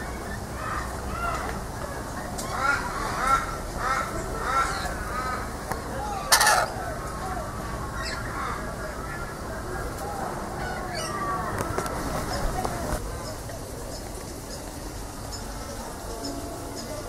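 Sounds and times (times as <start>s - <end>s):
chattering bird calls: 0.0s - 10.0s, 10.6s - 17.0s
lorikeet screech: 6.3s - 6.8s.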